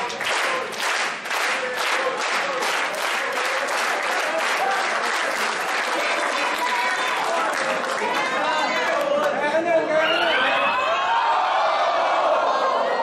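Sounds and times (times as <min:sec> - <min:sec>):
crowd chanting: 0:00.0 - 0:05.2, 0:10.2 - 0:13.0
crowd clapping in unison: 0:00.0 - 0:09.5.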